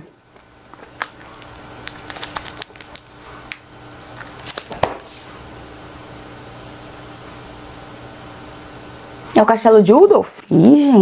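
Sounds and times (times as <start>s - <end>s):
book packaging clicks and crinkles: 0.4s - 5.1s.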